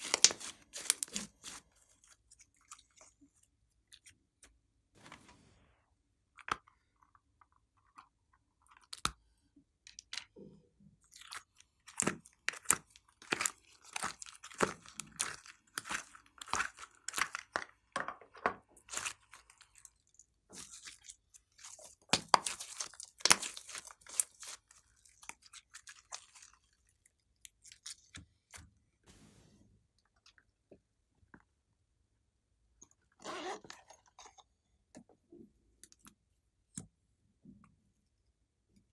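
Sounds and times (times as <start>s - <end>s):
slime clicking and squelching: 0.0s - 3.2s, 11.0s - 17.9s, 18.8s - 28.6s.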